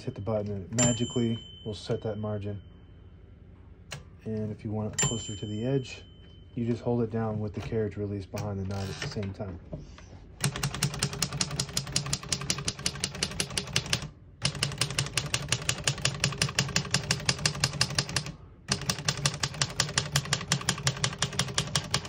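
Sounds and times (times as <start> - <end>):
manual typewriter typing: 10.4 - 22.0.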